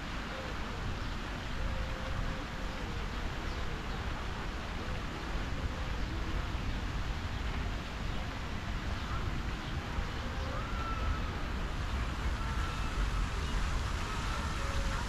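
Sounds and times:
faint distant voices: 0:00.0 - 0:15.0
fountain jets splashing into water: 0:00.0 - 0:15.0
wind: 0:00.0 - 0:15.0.

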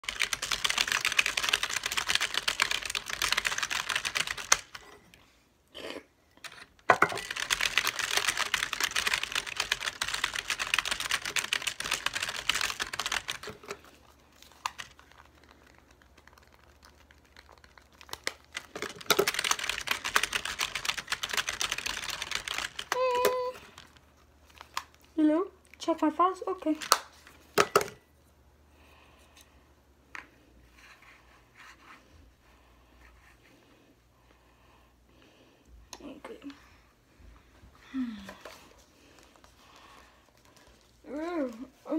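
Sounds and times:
fast keyboard typing: 0:00.0 - 0:04.9, 0:06.9 - 0:24.0.

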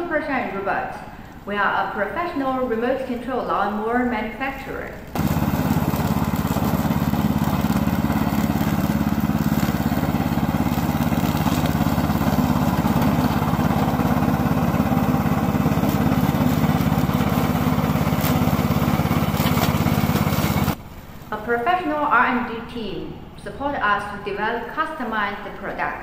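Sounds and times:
lawn mower engine cutting grass: 0:05.1 - 0:21.2.

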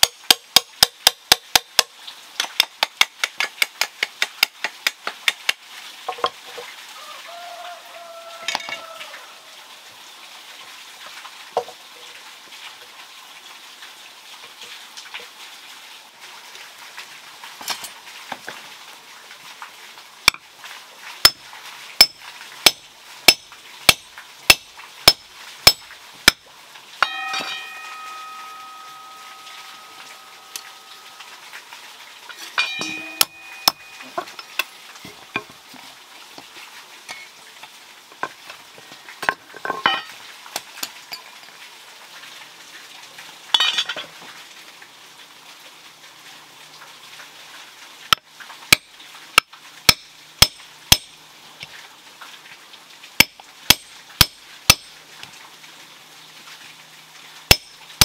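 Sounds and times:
hammer striking hot iron: 0:00.0 - 0:01.9, 0:22.0 - 0:26.4, 0:27.0 - 0:31.1, 0:32.6 - 0:34.7, 0:49.4 - 0:51.1, 0:53.2 - 0:54.9, 0:57.5 - 0:57.8
faint steady hiss: 0:00.0 - 0:58.0
metal ringing: 0:27.0 - 0:31.3, 0:32.4 - 0:34.7.

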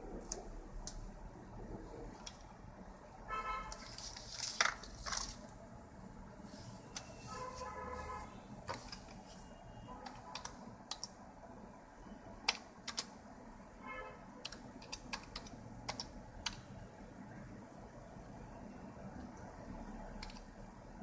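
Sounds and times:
keyboard typing: 0:08.7 - 0:09.4, 0:10.0 - 0:11.2, 0:12.4 - 0:13.2, 0:14.4 - 0:16.7, 0:20.0 - 0:20.6.

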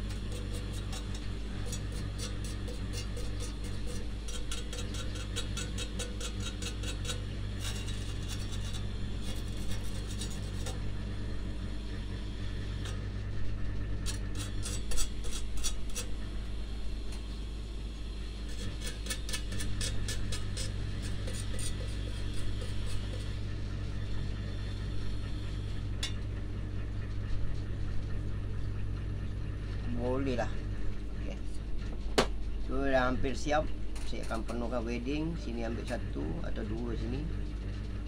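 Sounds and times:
wire brush scrubbing steel: 0:00.0 - 0:10.9, 0:14.0 - 0:16.3, 0:18.4 - 0:23.5.

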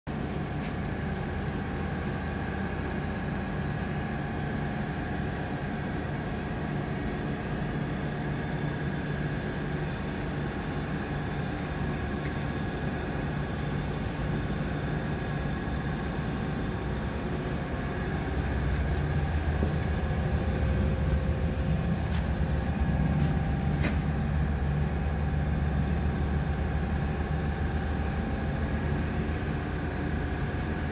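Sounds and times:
machinery hum: 0:00.1 - 0:30.9
faint whining tones: 0:07.6 - 0:30.9
deep rumble: 0:16.6 - 0:30.9.

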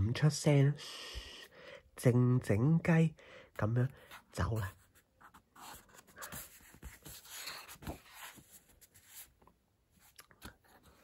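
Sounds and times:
paper page turning: 0:05.6 - 0:09.3.

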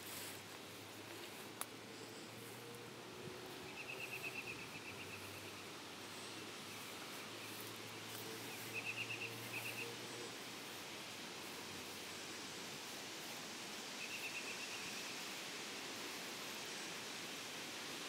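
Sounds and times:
steady outdoor hiss: 0:00.0 - 0:18.0.

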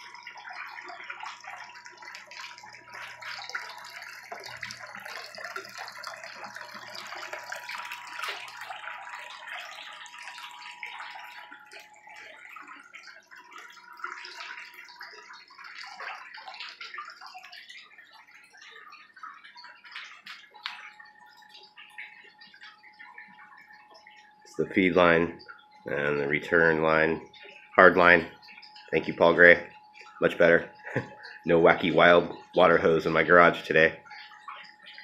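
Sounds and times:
faint steady hum: 0:00.0 - 0:35.0
water rushing down a gutter: 0:00.0 - 0:35.0
water splashing into a tub: 0:00.0 - 0:35.0.

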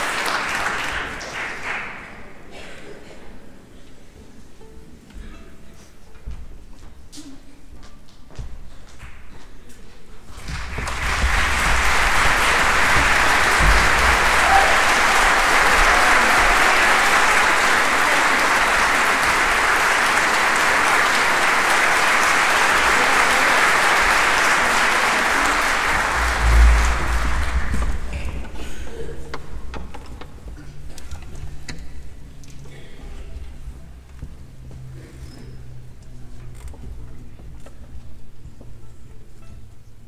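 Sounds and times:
audience applauding: 0:00.0 - 0:02.4, 0:10.3 - 0:28.9.

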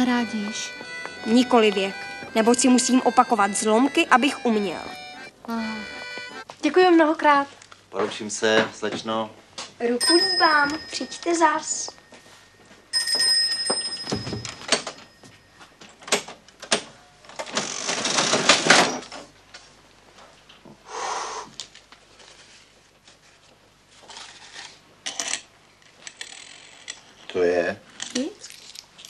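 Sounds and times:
small bell ringing: 0:10.0 - 0:15.7
mechanical cash register clatter: 0:16.0 - 0:19.3.

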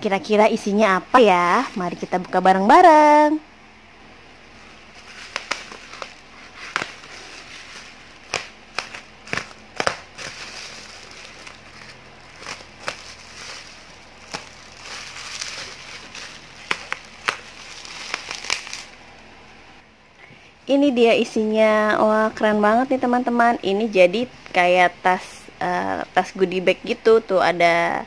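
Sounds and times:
plastic mailer tearing and crinkling: 0:05.0 - 0:19.0.

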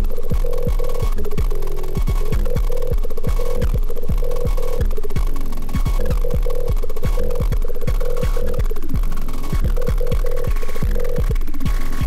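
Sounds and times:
pulsing synth blips: 0:02.0 - 0:11.4.

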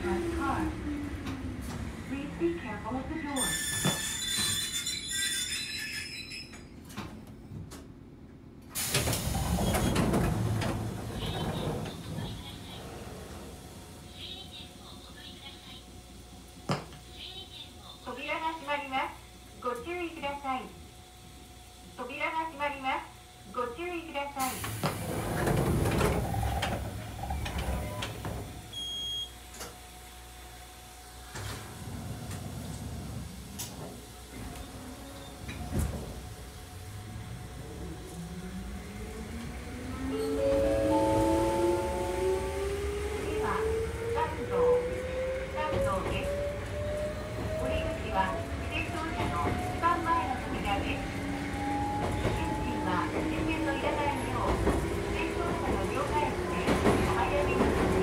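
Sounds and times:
railcar equipment low hum: 0:00.0 - 0:58.0
train doors sliding open: 0:03.3 - 0:08.0, 0:08.6 - 0:14.1, 0:24.4 - 0:29.9, 0:31.1 - 0:58.0.

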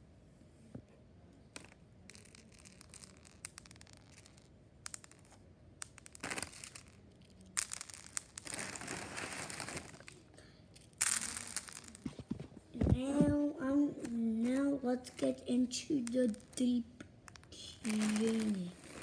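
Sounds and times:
cereal pouring: 0:06.0 - 0:10.2, 0:11.0 - 0:12.0, 0:17.7 - 0:19.0
plastic bag crinkling: 0:08.4 - 0:10.2, 0:17.6 - 0:19.0.

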